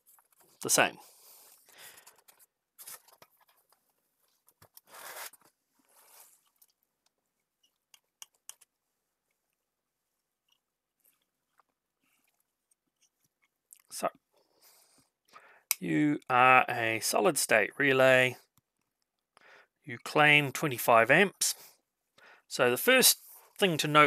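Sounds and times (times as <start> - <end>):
soft handling rustles: 0.0 - 7.8.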